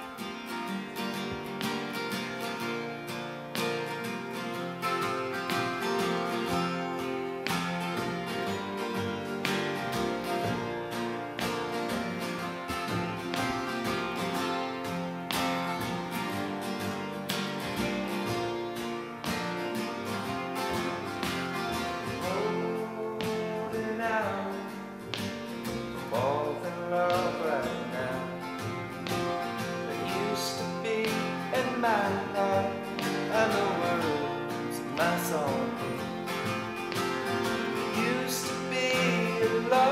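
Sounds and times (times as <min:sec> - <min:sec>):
acoustic guitars strummed: 0:00.0 - 0:39.9
upright bass: 0:04.7 - 0:39.9
man singing: 0:22.2 - 0:24.8, 0:26.1 - 0:28.6, 0:29.8 - 0:36.3, 0:37.8 - 0:39.9.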